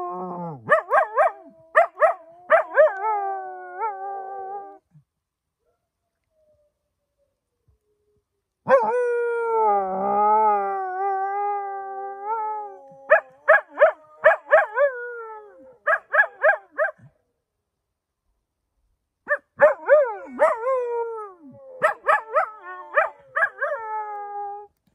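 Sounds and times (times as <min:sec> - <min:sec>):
dog barking: 0:15.9 - 0:17.1.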